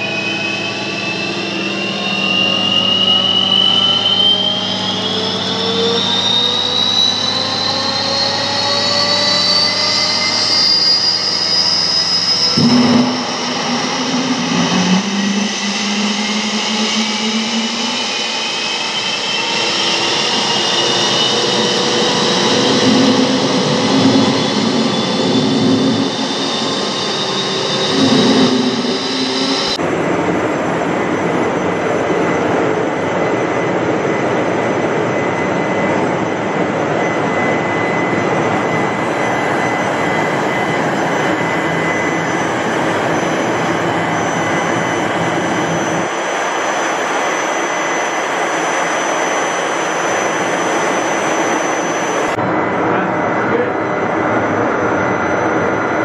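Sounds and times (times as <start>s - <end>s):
gas turbine whining: 0.0s - 56.0s
turbine rushing: 0.0s - 56.0s
low rumble: 12.5s - 19.3s.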